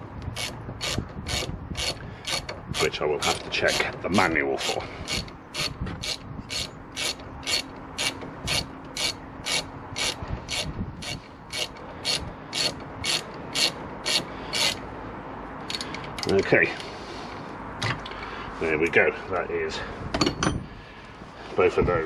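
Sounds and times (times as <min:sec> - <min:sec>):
socket ratchet clicking: 0:05.0 - 0:14.8.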